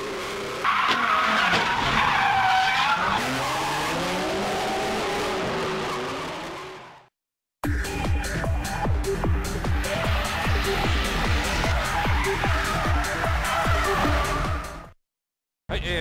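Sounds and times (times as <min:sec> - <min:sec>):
car engines revving: 0:00.0 - 0:07.0, 0:07.8 - 0:14.9
tyres squealing: 0:09.4 - 0:14.7.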